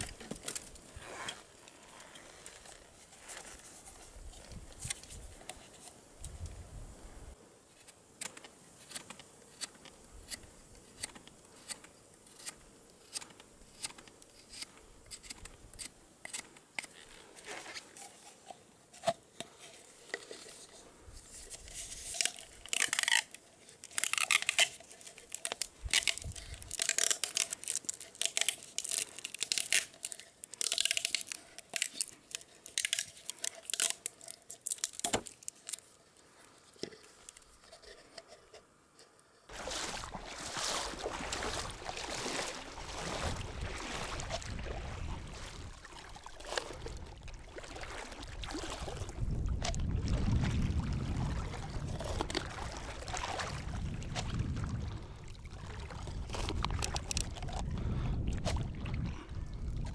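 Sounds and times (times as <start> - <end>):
plastic bottle crinkling: 0.0 - 6.0, 16.8 - 38.5, 55.7 - 58.6
knife shaving wooden stick: 8.8 - 35.9.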